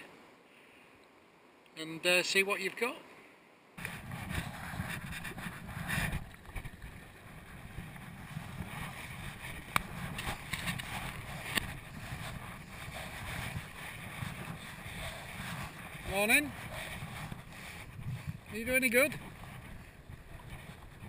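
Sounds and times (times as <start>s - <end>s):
paddle strokes through water: 3.8s - 21.0s
wind on microphone: 3.8s - 21.0s.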